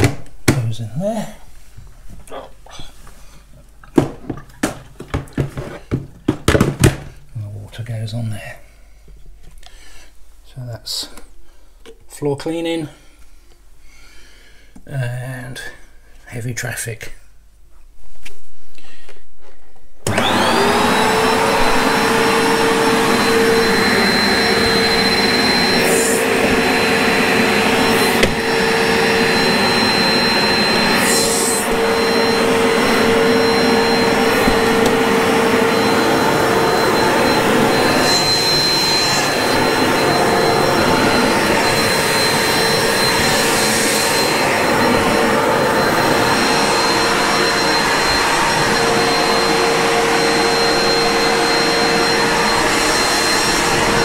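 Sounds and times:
carpet cleaner motor whining: 0:20.0 - 0:54.0
suction air rushing: 0:20.4 - 0:54.0.

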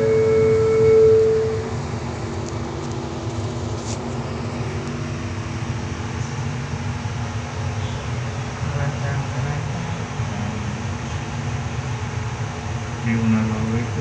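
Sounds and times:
steady tone: 0:00.0 - 0:02.2
train rumbling on track: 0:00.0 - 0:14.0.

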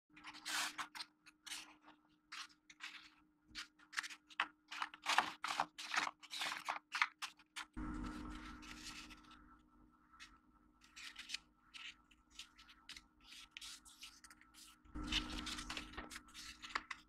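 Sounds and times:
paper rustling and crinkling: 0:00.1 - 0:09.4, 0:10.2 - 0:17.0
faint steady hum: 0:07.6 - 0:17.0.

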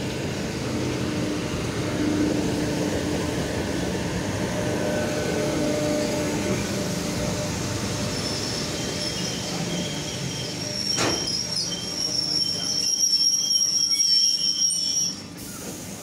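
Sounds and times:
train rumble: 0:00.0 - 0:16.0
wheels and brakes squealing: 0:08.0 - 0:15.8.

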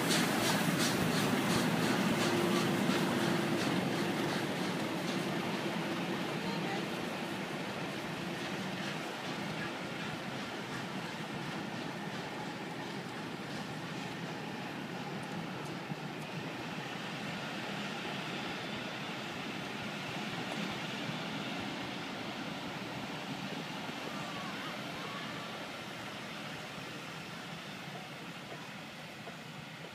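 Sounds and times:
train coaches rumbling past: 0:00.0 - 0:29.9.

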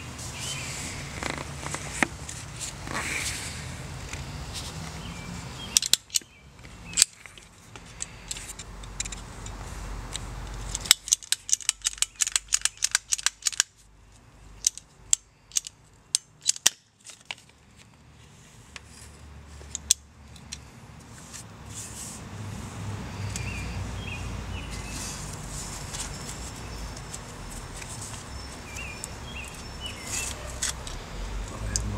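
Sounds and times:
ratcheting pipe cutter clicking: 0:05.8 - 0:06.2, 0:10.7 - 0:13.7, 0:14.6 - 0:16.8.

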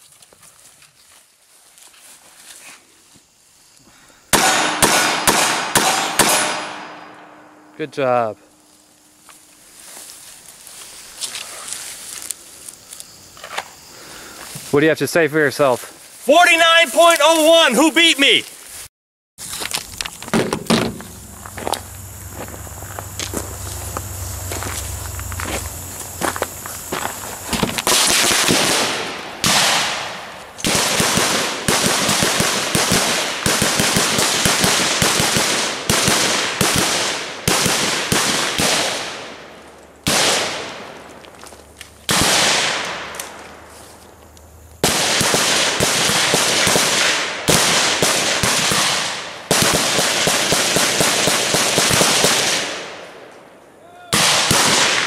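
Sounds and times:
rapid rifle fire: 0:04.3 - 0:07.1, 0:27.8 - 0:39.4, 0:40.0 - 0:40.8, 0:42.1 - 0:42.9, 0:44.8 - 0:52.9, 0:54.2 - 0:55.0.

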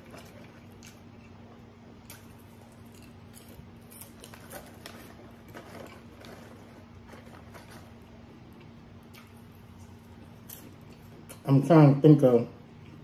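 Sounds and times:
steady low hum: 0:00.0 - 0:13.0
lip smacks and mouth clicks: 0:08.6 - 0:09.4.

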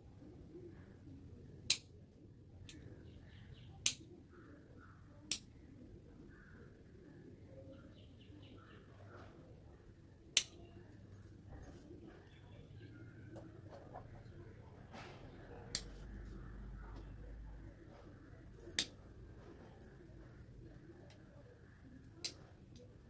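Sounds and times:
pruning scissors snipping twigs: 0:01.6 - 0:01.9, 0:05.3 - 0:05.5.

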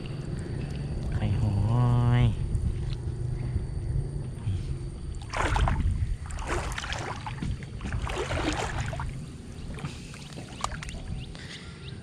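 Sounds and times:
steady low rumble: 0:00.0 - 0:12.0
water swishing and splashing: 0:05.0 - 0:11.3.

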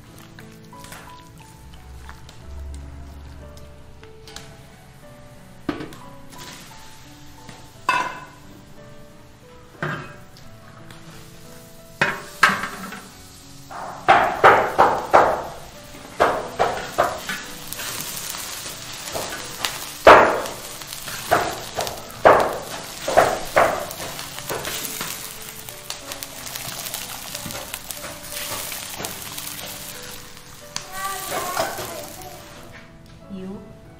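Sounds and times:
frying sizzle: 0:00.0 - 0:33.0
faint background music: 0:00.0 - 0:33.9
spatula scraping wok: 0:10.1 - 0:32.7.

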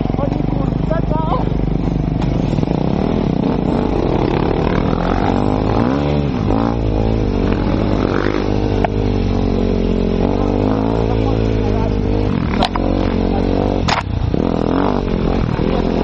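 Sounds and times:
motorcycle engine revving: 0:00.0 - 0:16.0
sharp click: 0:13.9 - 0:14.1.

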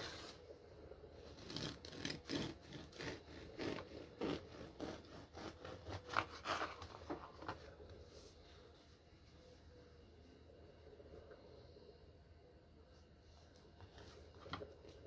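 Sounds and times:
bread knife sawing through crust: 0:01.3 - 0:07.0.

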